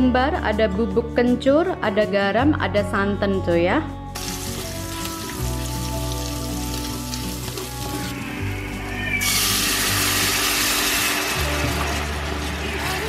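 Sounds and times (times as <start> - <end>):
background music: 0.0 - 13.0
spice paste frying in pan: 4.2 - 8.6, 9.2 - 13.0
loud sizzling hiss: 4.2 - 13.0.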